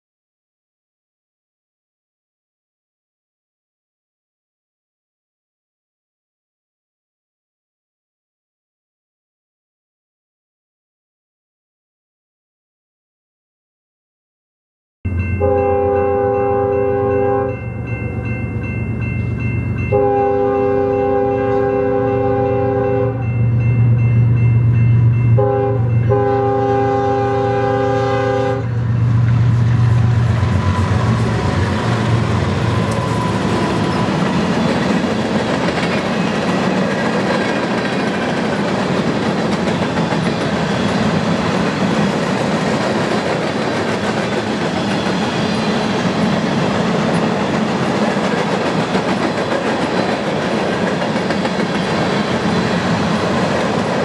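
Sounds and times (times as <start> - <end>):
locomotive air horn blasts: 15.4 - 17.6, 19.9 - 23.2, 25.4 - 34.2
train wheels on rails clattering: 29.0 - 54.0.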